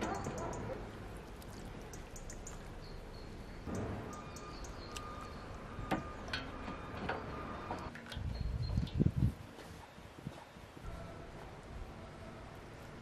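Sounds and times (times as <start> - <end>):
small birds chirping: 0.0 - 6.2, 7.8 - 10.8.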